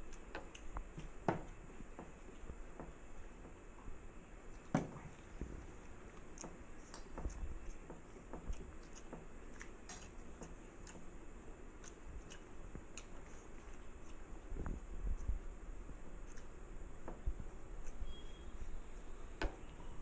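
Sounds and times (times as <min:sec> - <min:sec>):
fingers mixing food on steel plates: 0:04.5 - 0:20.0.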